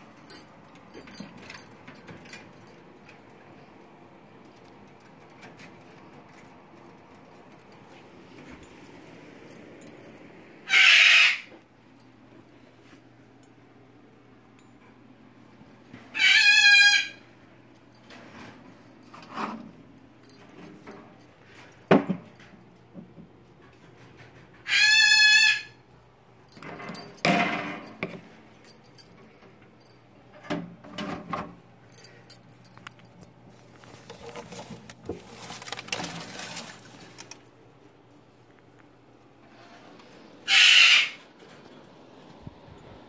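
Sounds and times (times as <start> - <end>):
loud pitched animal call: 10.7 - 11.5, 16.1 - 17.2, 24.7 - 25.8, 40.4 - 41.2
rustling and knocking from handling: 32.6 - 37.4.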